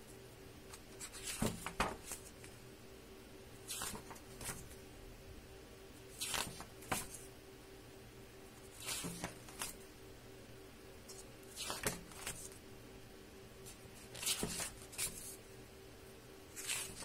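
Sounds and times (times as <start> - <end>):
faint steady hum: 0.0 - 17.0
book pages turning: 0.7 - 2.6, 3.6 - 4.8, 6.1 - 7.3, 8.6 - 9.8, 11.1 - 12.6, 13.6 - 15.4, 16.5 - 17.0.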